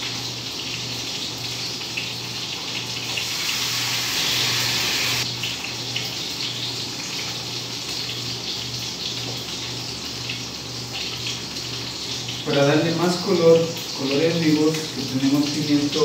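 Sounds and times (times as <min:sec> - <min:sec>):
steady hiss: 0:03.2 - 0:05.3.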